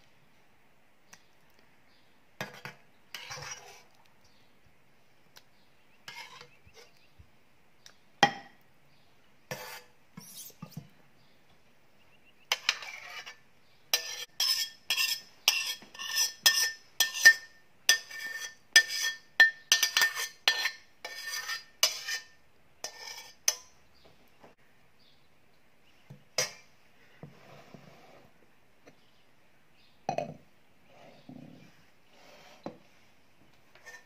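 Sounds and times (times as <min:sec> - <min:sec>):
metal spoon scraping steel pan: 0:02.4 - 0:04.0, 0:06.0 - 0:07.0, 0:09.5 - 0:10.8, 0:12.5 - 0:23.7, 0:32.1 - 0:32.8, 0:33.7 - 0:34.0.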